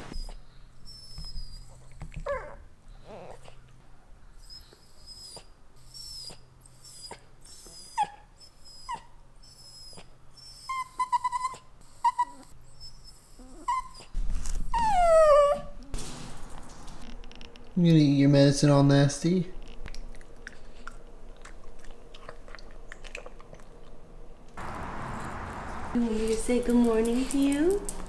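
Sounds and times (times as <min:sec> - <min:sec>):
dog whining: 0:00.0 - 0:03.7, 0:04.3 - 0:15.9.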